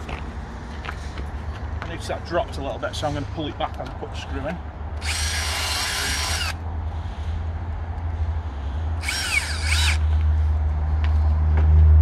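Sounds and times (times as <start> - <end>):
cordless drill whine: 5.0 - 6.6, 9.0 - 10.2.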